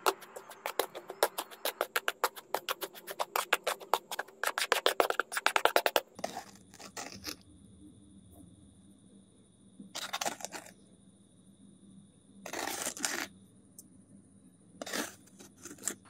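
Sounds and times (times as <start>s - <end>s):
spoon scraping wet mortar: 0.0s - 7.4s, 10.0s - 10.7s, 12.5s - 13.3s, 14.8s - 16.0s
faint hum with high whine: 0.0s - 16.0s.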